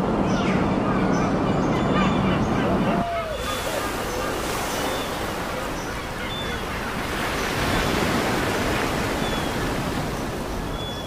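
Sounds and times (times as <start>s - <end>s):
ocean waves breaking on beach: 2.7s - 11.0s.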